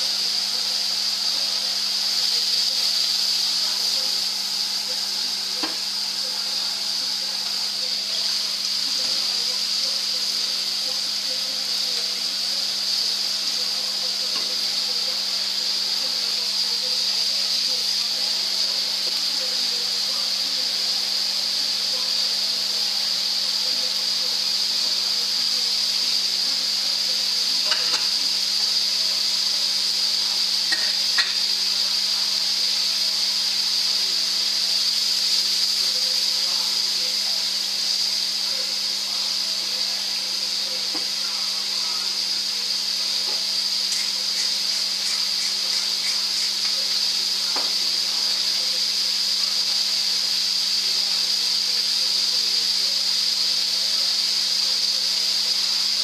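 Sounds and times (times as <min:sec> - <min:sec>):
vegetables sizzling in frying pan: 0:00.0 - 0:52.3.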